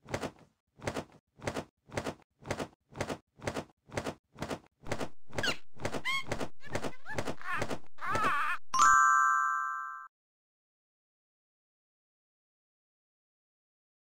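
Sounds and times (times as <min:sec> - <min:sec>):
cartoon wings flapping: 0:00.0 - 0:08.2.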